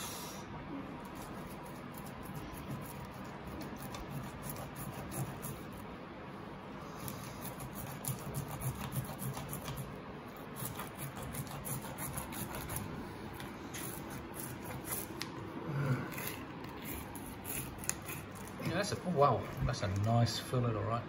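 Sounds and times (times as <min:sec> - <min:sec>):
knife scraping fish bones: 0:07.0 - 0:15.4, 0:16.0 - 0:19.1.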